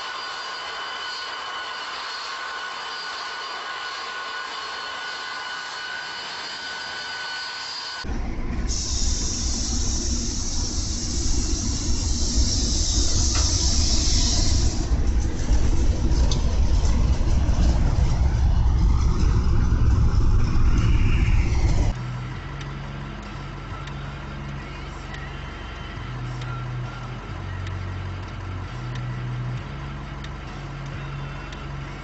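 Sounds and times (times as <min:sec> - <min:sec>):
engine hum with pulsing tone: 0:08.0 - 0:32.0
snowplow rumble and hiss: 0:08.1 - 0:22.0.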